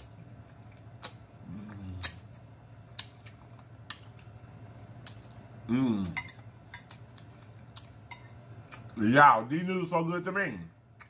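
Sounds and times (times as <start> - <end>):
wet mouth-smacking chewing: 0.7 - 4.3, 5.0 - 5.5
man humming mmm: 1.4 - 2.2.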